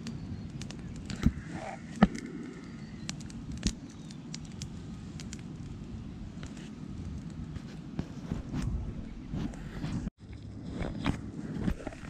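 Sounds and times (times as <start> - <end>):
sharp pops of fire: 0.0 - 5.8
campfire crackling: 0.0 - 12.0.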